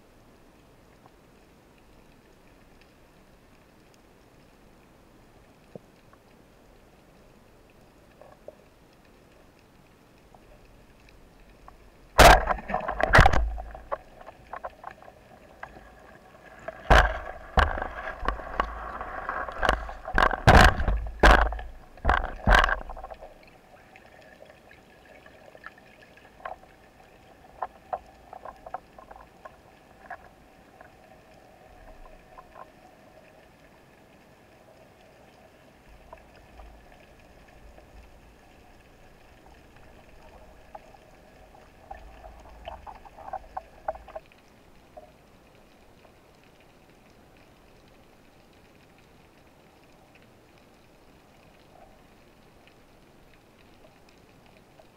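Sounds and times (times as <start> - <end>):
rushing water: 0.0 - 54.9
faint scattered clicks: 0.4 - 54.9
speargun firing crack: 12.2 - 13.3
underwater knocks: 12.2 - 15.0, 16.7 - 23.3.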